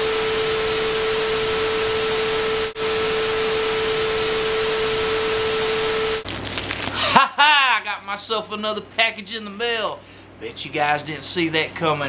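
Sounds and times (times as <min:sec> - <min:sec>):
steady tone: 0:00.0 - 0:06.2.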